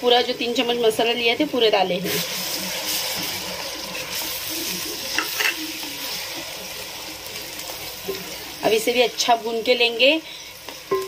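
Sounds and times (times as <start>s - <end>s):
paste sizzling in hot oil: 0.2s - 11.0s
spatula scraping metal pot: 2.0s - 6.2s.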